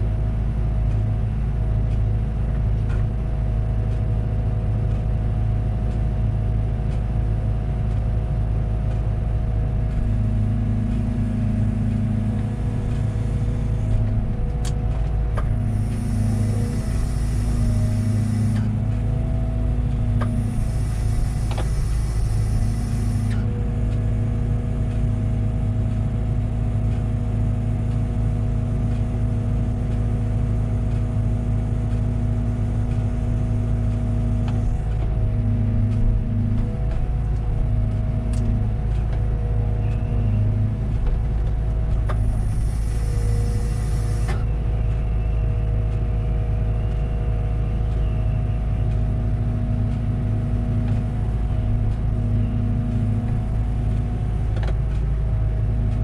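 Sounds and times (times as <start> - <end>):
excavator engine drone: 0.0 - 56.0
hydraulic hiss: 15.6 - 18.8, 20.3 - 23.4, 42.2 - 44.4.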